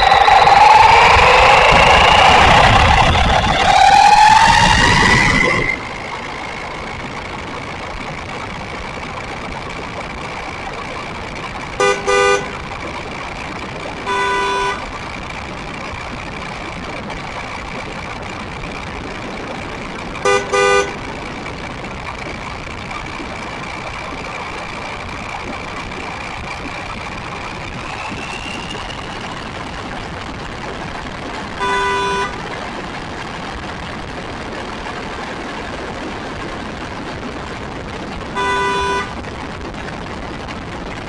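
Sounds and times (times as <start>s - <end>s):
tyre and wind noise: 0.0s - 41.0s
horn tooting: 11.8s - 12.6s, 14.0s - 14.9s, 20.2s - 21.0s, 31.5s - 32.4s, 38.3s - 39.2s.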